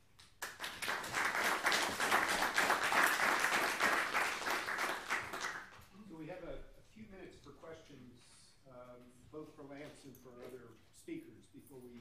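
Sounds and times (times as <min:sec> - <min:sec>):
audience clapping: 0:00.0 - 0:05.9.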